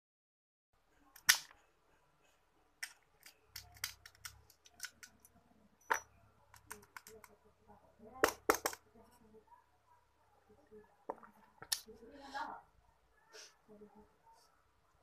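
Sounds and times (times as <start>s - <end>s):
glass bottle and keys clinking: 5.8s - 6.2s.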